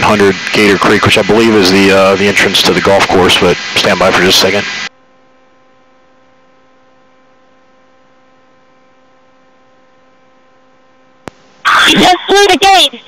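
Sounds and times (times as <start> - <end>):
faint hiss: 0.0 - 4.9
steady electrical hum: 0.0 - 13.0.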